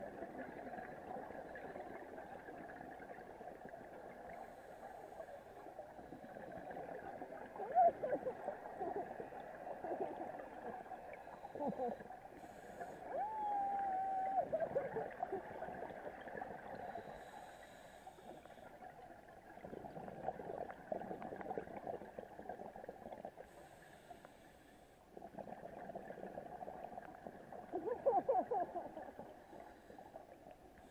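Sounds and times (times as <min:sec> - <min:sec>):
exhaled bubbles gurgling: 0:00.0 - 0:24.1, 0:25.1 - 0:30.9
regulator inhale hiss: 0:12.4 - 0:13.1, 0:16.8 - 0:18.7, 0:23.5 - 0:25.0.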